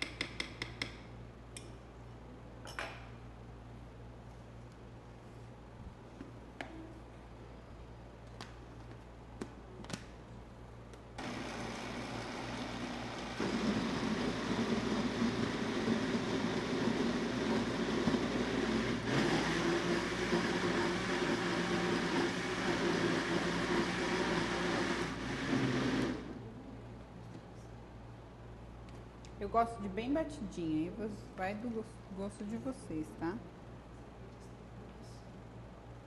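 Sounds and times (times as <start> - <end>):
blender motor running: 11.2 - 26.3.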